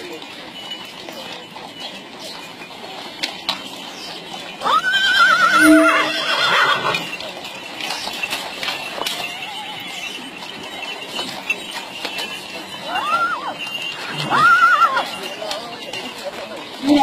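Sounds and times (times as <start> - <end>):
hoofbeats on gravel: 0.0 - 17.0
horse whinnying: 4.6 - 7.1, 9.1 - 10.2, 12.9 - 15.2.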